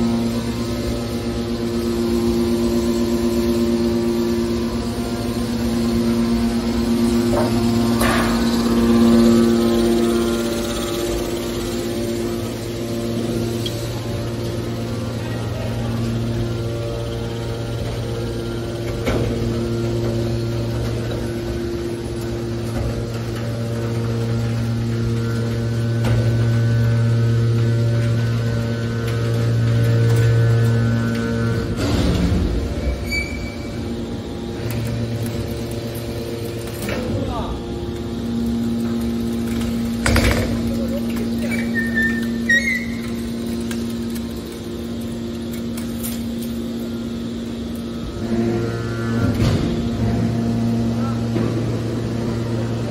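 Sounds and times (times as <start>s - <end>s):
hydraulic power unit humming: 0.0s - 52.9s
high squeaks: 41.4s - 43.2s.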